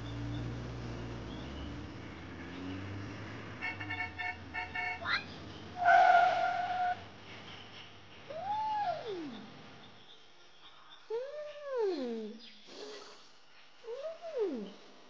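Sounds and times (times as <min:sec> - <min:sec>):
steady horn tone: 0:05.8 - 0:07.0.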